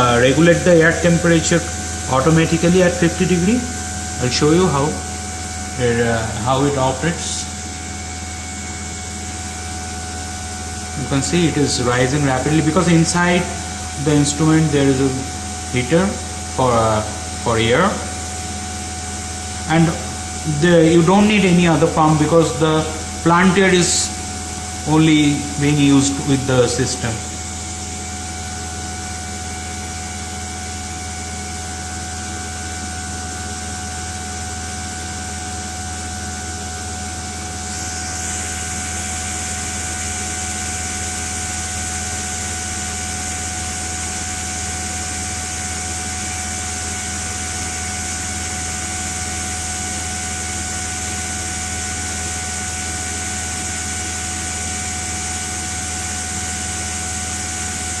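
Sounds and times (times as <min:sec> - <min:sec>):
low hum: 0:00.0 - 0:30.4
faint steady whine: 0:00.0 - 0:58.0.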